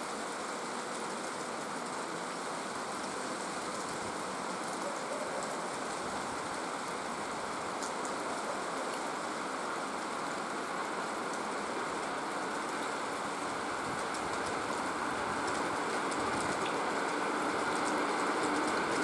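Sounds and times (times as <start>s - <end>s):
steady rain hiss: 0.0s - 19.0s
electric train rolling: 14.2s - 19.0s.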